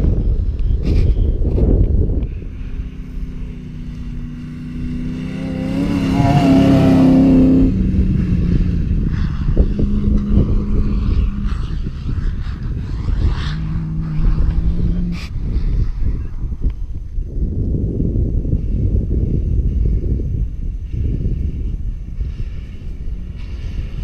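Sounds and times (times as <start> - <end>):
wind rumbling on microphone: 0.0 - 24.0
race vehicle engine driving past: 1.5 - 17.0.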